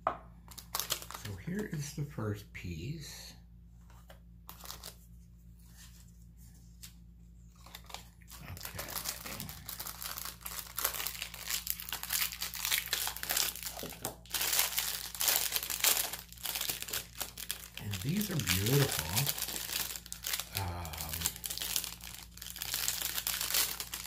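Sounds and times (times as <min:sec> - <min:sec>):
packaging wrapper crinkling: 0:00.5 - 0:01.7, 0:04.5 - 0:05.0, 0:07.5 - 0:24.0.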